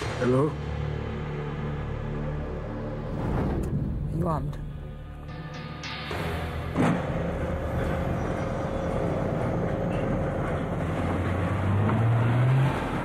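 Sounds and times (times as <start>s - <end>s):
car engine and road rumble: 6.1s - 13.0s.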